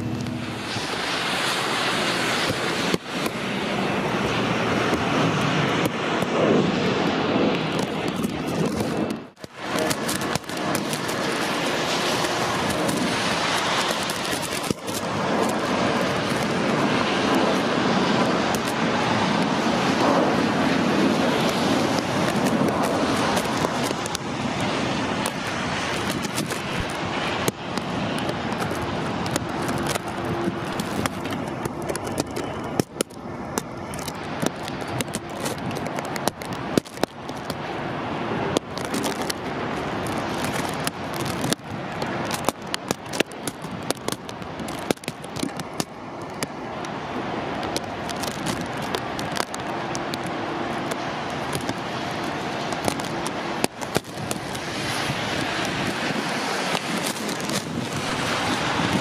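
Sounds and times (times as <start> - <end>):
jet engine idling: 0.0 - 14.0
sharp crackles and clicks: 0.0 - 59.0
wind on microphone: 0.0 - 59.0.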